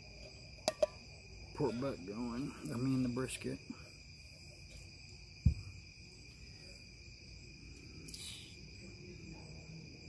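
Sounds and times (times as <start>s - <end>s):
crickets chirping: 0.0s - 10.0s
low thump: 5.4s - 5.8s.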